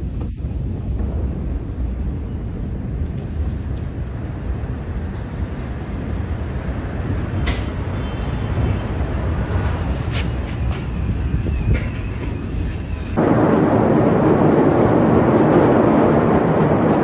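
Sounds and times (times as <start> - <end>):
low bass rumbling: 0.0 - 7.4, 10.9 - 17.0.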